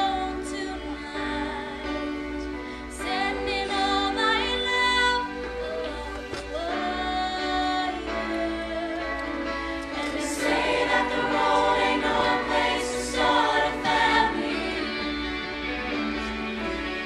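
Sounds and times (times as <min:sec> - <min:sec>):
choir singing in harmony: 0:06.0 - 0:17.0.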